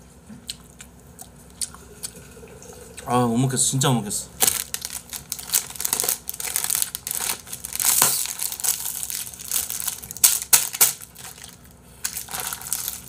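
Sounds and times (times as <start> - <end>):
plastic tube crinkling: 4.4 - 13.0.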